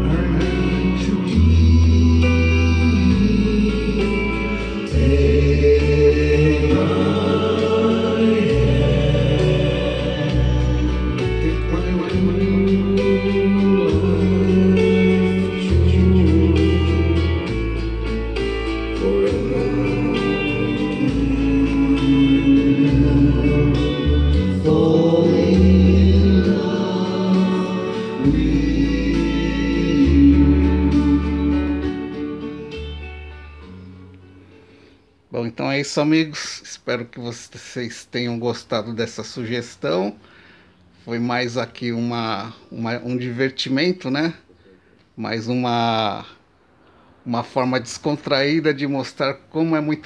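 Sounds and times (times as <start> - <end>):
bass line: 0.0 - 34.4
music with singing over loudspeakers: 0.0 - 35.2.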